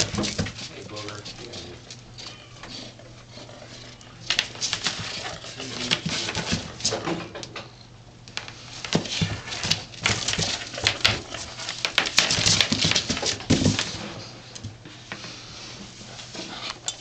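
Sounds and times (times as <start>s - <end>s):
kitten claws scrabbling on floor: 8.4s - 14.0s.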